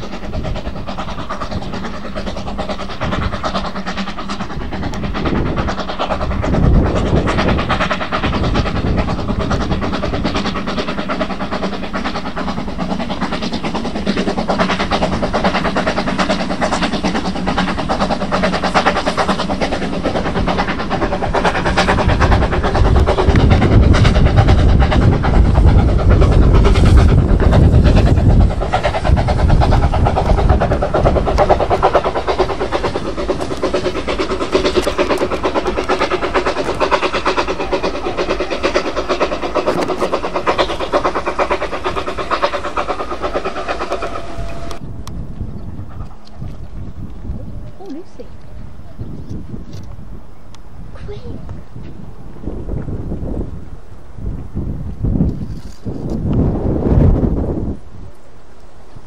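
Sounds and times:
train wheels clicking over rail joints: 0.0s - 56.5s
heavy train rumble: 0.0s - 59.0s.

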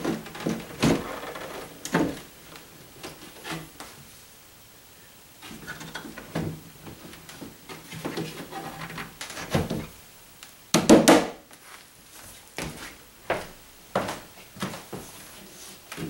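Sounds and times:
wood scraping: 0.0s - 4.0s.

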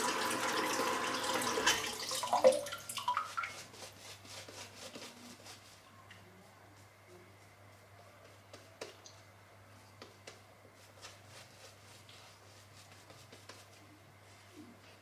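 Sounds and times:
shaving brush swishing: 3.2s - 5.9s, 10.3s - 14.5s.

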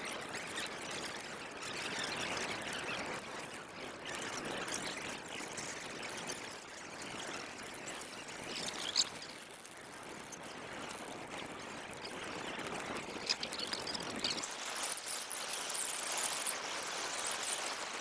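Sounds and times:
bonfire crackling: 5.3s - 18.0s
fire popping: 7.7s - 17.8s.

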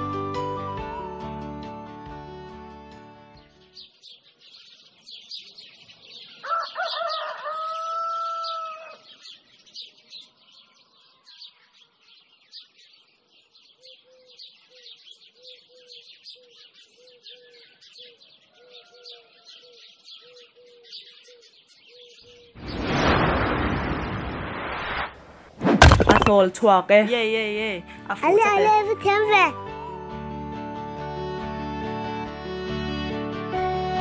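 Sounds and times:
small birds chirping: 3.6s - 22.8s
rooster crowing: 6.4s - 9.1s, 18.6s - 19.6s.

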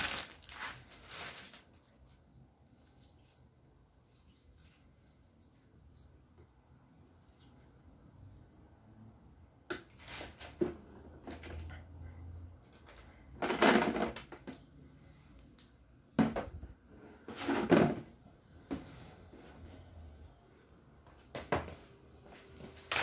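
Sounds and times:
hollow plastic knocks and clatters: 13.4s - 14.7s, 16.1s - 18.8s.

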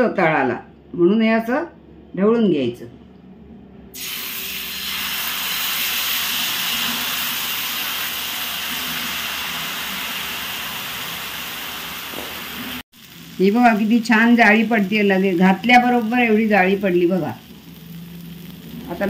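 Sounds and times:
batter sizzling on a hot griddle: 4.0s - 19.0s.

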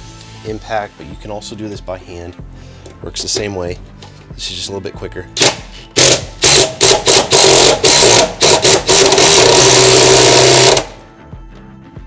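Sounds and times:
cordless impact driver: 5.4s - 11.0s.

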